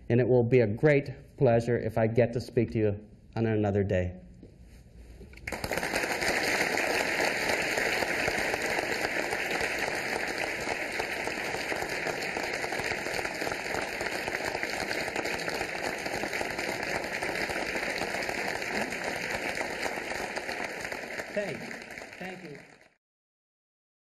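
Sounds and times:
audience applause: 5.4s - 23.0s.

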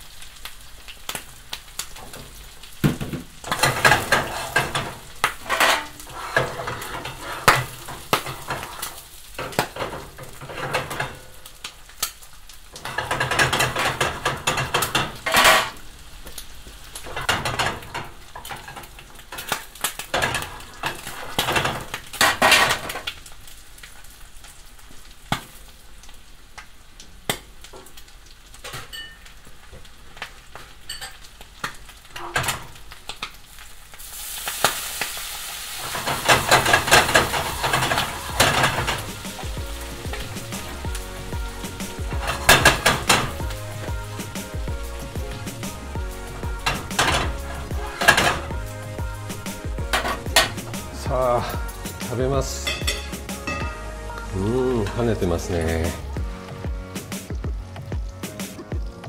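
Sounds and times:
food sizzling in butter: 0.0s - 59.0s
metal clinking against pan: 28.8s - 29.3s, 52.6s - 53.8s.

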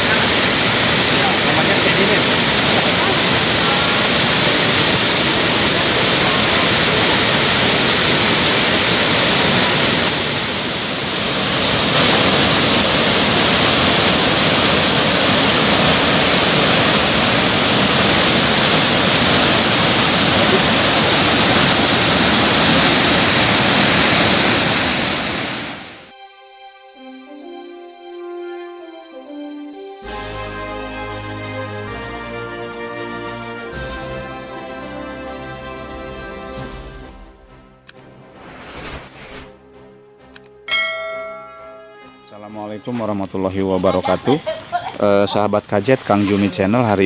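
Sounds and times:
waterfall rushing: 0.0s - 26.1s.

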